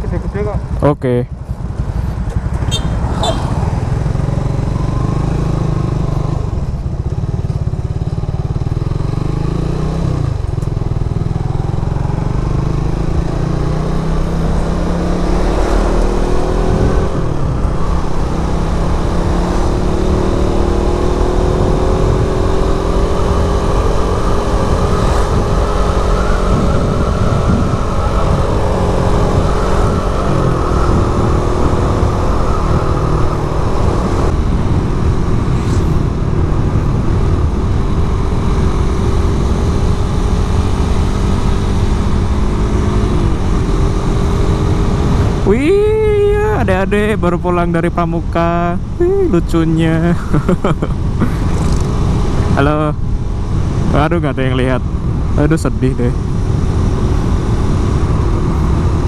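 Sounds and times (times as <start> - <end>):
motorcycle engine running: 0.0 - 47.8, 50.0 - 59.0
wind on microphone: 14.2 - 45.5, 50.2 - 59.0.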